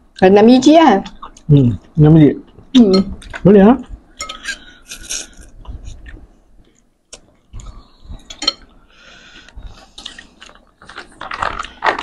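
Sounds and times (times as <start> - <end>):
spoon and fork clinking bowl: 4.2 - 4.6, 8.3 - 8.7
chewing: 4.2 - 12.0.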